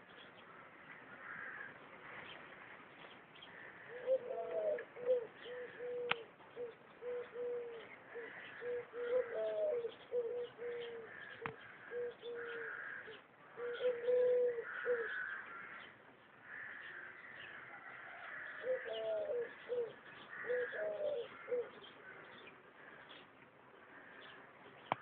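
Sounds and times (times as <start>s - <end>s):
small birds chirping faintly: 0.0s - 25.0s
pigeon cooing: 3.9s - 13.0s, 13.6s - 15.3s, 18.6s - 21.8s.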